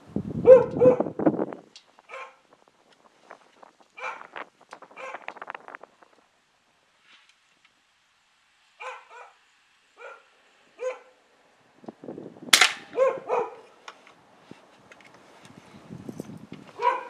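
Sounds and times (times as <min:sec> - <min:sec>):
dog barking: 0:00.4 - 0:01.2, 0:02.1 - 0:02.4, 0:04.0 - 0:04.3, 0:05.0 - 0:05.3, 0:08.8 - 0:09.4, 0:10.0 - 0:11.2, 0:12.9 - 0:13.7, 0:16.8 - 0:17.0
air rifle shot crack: 0:12.5 - 0:13.2.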